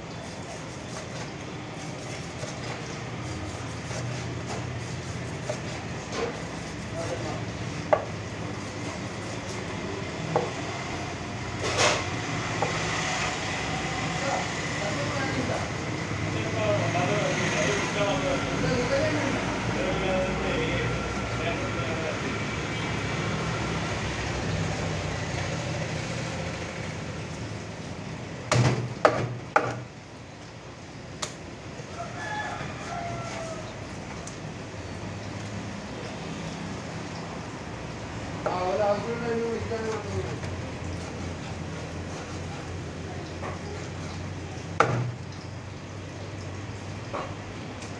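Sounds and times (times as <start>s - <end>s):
knife chopping on wooden board: 7.9s - 8.1s, 28.5s - 29.9s, 44.8s - 45.2s.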